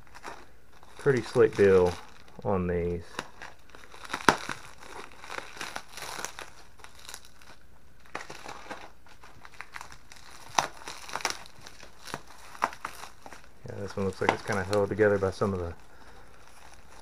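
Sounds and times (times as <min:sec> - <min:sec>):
bubble wrap crinkling: 0:00.0 - 0:17.0
bubble wrap snaps: 0:00.0 - 0:17.0.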